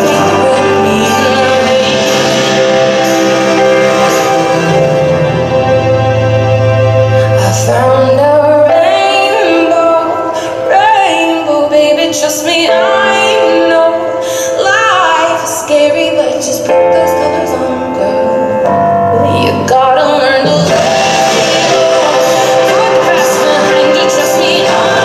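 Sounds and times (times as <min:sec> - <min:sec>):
woman singing with vibrato: 0:00.0 - 0:04.9, 0:07.0 - 0:25.0
sustained instrumental accompaniment: 0:00.0 - 0:12.0, 0:17.2 - 0:25.0.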